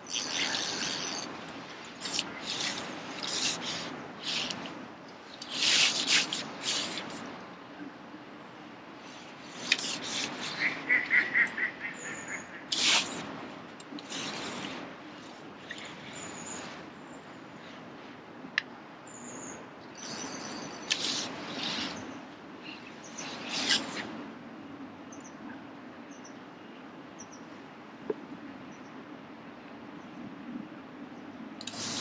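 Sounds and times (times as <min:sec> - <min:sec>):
fishing reel winding: 0:00.1 - 0:01.3, 0:02.0 - 0:04.6.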